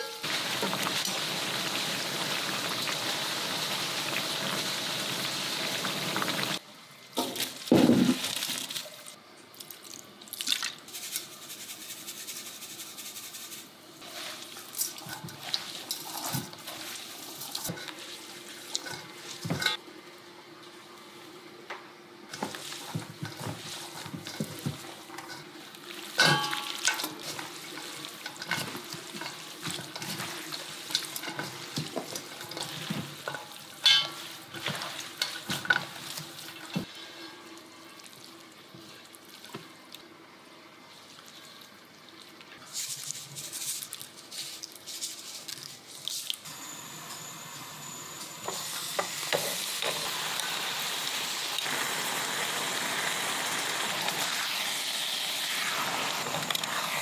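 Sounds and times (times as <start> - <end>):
meat sizzling in frying pan: 0.2 - 6.6, 22.4 - 36.9, 46.5 - 57.0.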